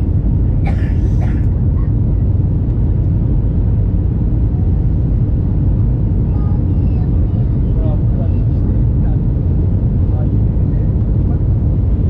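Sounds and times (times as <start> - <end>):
airplane cabin engine roar: 0.0 - 12.0.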